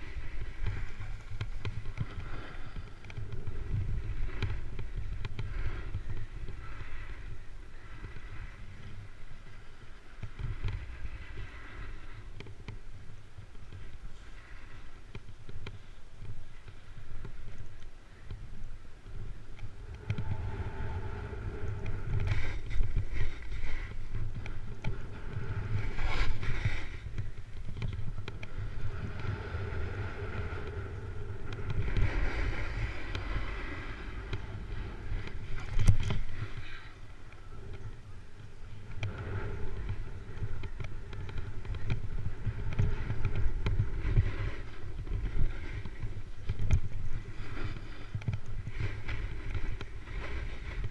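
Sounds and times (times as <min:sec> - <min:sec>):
wind rumbling on microphone: 0:00.0 - 0:50.9
snowboard edge scraping snow: 0:25.1 - 0:27.1, 0:31.8 - 0:36.6.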